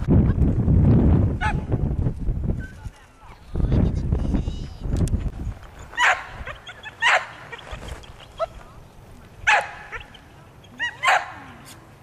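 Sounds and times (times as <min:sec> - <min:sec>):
dog barking: 0:06.0 - 0:07.5, 0:09.5 - 0:10.1, 0:10.8 - 0:11.5
dog yipping: 0:06.0 - 0:08.6.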